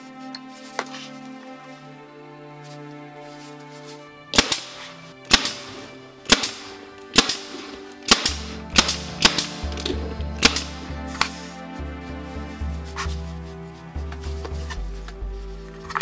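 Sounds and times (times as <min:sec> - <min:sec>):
background music: 0:00.0 - 0:16.0
nail gun firing: 0:04.4 - 0:09.6, 0:10.4 - 0:10.7.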